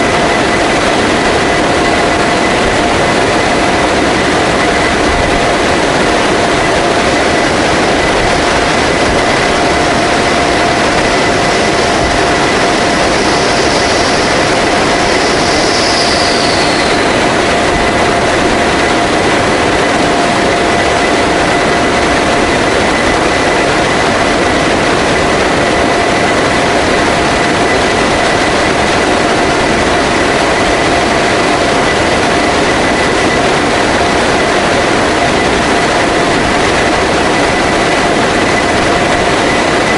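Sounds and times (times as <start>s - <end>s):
constant humming tones: 0.0s - 39.9s
rushing air and turboprop engines: 0.0s - 39.9s.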